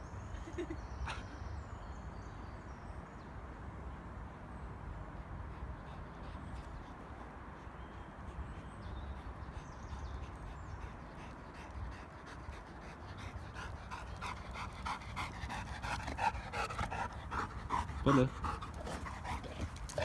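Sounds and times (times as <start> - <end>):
dog panting hard: 5.3 - 20.0.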